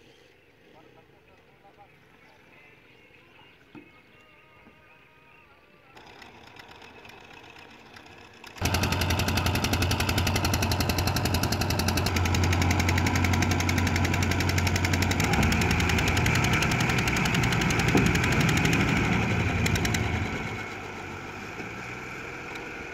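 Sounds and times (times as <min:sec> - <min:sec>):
tractor engine working hard: 0:06.0 - 0:22.9.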